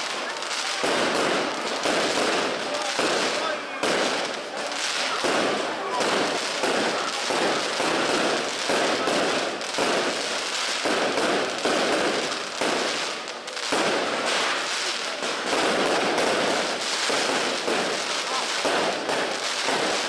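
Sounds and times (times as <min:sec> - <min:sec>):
firecrackers crackling: 0:00.0 - 0:20.0.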